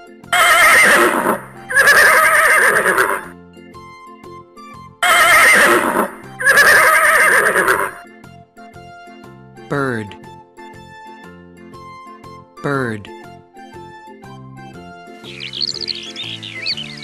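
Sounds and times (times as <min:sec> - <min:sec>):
light background music: 0:00.0 - 0:17.0
horse neighing: 0:00.3 - 0:03.3, 0:05.0 - 0:08.0.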